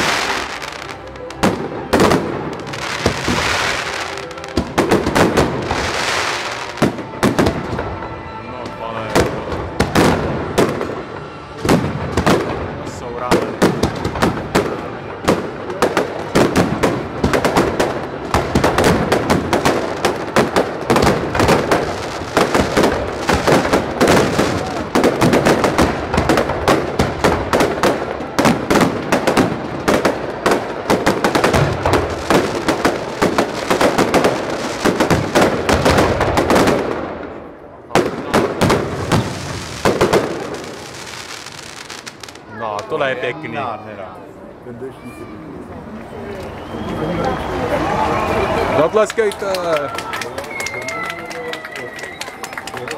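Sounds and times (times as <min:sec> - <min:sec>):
fireworks bursting with loud bangs: 0:00.0 - 0:08.1, 0:09.1 - 0:42.5
fireworks crackling: 0:00.0 - 0:08.1, 0:09.0 - 0:43.1.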